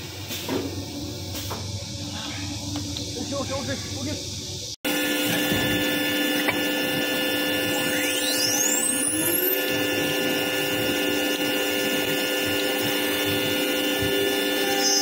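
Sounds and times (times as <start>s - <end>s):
cnc router whining: 4.9s - 15.0s
spindle motor spinning up: 4.9s - 15.0s.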